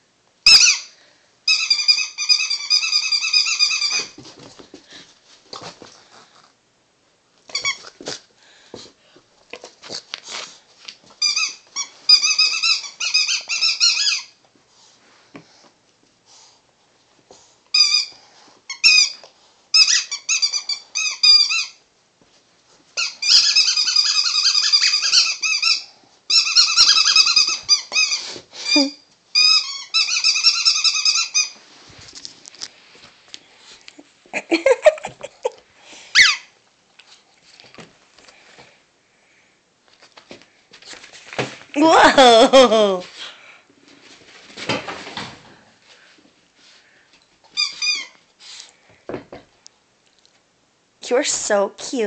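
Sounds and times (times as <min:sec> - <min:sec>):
rubber chew toy squeaking: 0:00.5 - 0:00.9, 0:01.5 - 0:04.2, 0:07.5 - 0:08.0, 0:11.2 - 0:14.4, 0:17.7 - 0:18.1, 0:18.7 - 0:21.8, 0:23.0 - 0:31.6, 0:36.1 - 0:36.5, 0:47.5 - 0:48.2.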